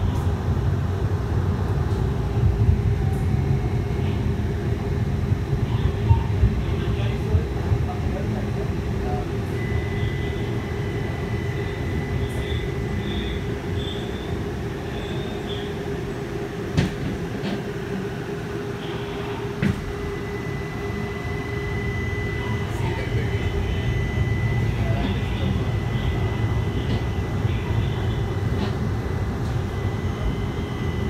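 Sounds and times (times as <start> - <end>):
streetcar running rumble: 0.0 - 31.0
high whine: 9.1 - 16.5, 18.0 - 31.0.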